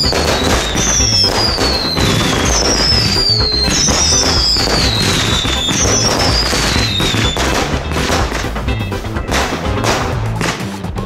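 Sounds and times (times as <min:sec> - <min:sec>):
falling firework whistles: 0:00.0 - 0:08.4
fireworks banging and crackling: 0:00.0 - 0:11.0.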